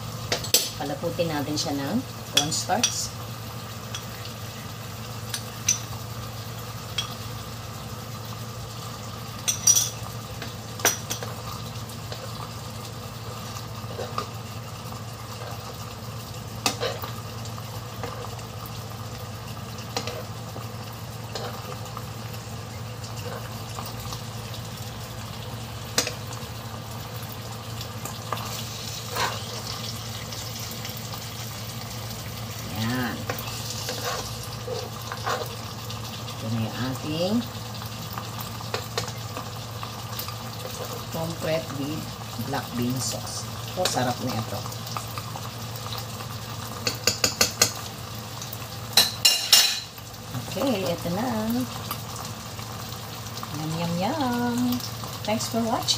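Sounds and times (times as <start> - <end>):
sauce sizzling in a frying pan: 0.0 - 55.9
metal spoon stirring: 33.4 - 35.6.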